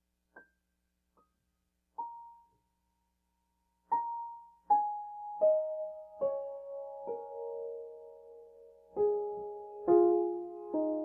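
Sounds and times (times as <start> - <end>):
gentle solo piano: 2.0 - 2.7, 3.8 - 11.0.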